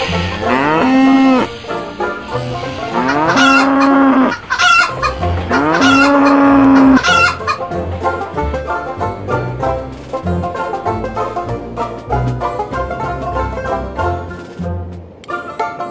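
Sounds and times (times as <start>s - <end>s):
cow mooing: 0.0s - 1.6s, 2.3s - 7.4s
chicken clucking: 0.0s - 14.6s, 15.2s - 15.9s
background music: 0.0s - 15.9s.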